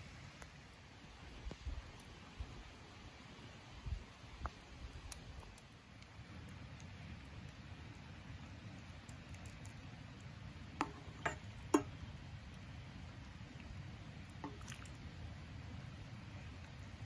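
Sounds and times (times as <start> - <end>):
utensil tapping steel cup: 10.8 - 11.9.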